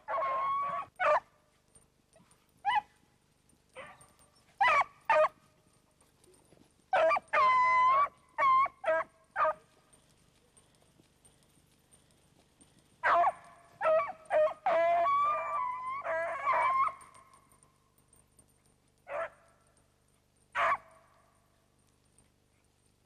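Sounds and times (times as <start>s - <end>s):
hounds baying and barking: 0.0s - 23.0s.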